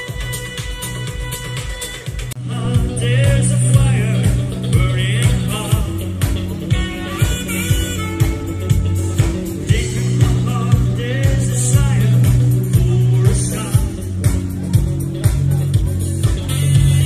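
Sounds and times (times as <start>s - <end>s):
drum beat: 0.0s - 17.0s
live pop-rock band: 0.0s - 17.0s
person singing: 2.4s - 8.4s, 9.5s - 14.8s, 16.3s - 17.0s.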